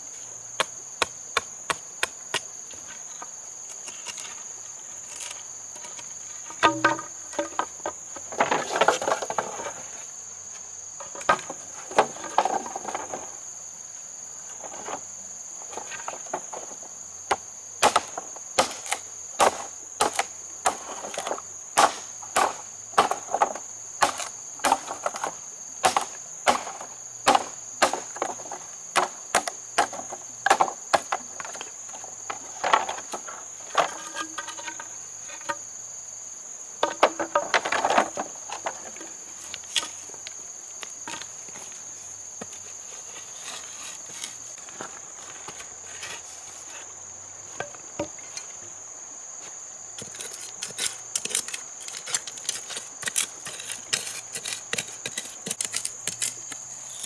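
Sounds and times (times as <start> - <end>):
sharp knocks: 6.5 - 7.6.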